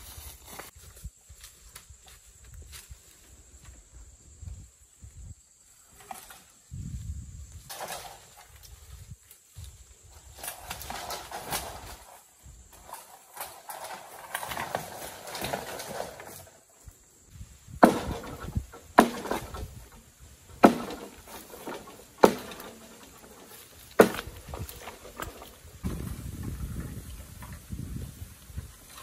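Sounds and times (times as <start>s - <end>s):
rustling and scraping: 0.0s - 3.9s, 5.8s - 29.0s
sharp knocks: 17.8s - 19.7s, 20.6s - 23.2s, 24.0s - 24.6s.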